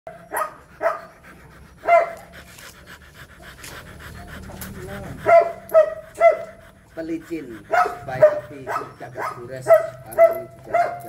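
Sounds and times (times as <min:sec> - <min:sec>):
dog panting rapidly: 0:00.1 - 0:11.0
short high dog barks: 0:07.7 - 0:11.0.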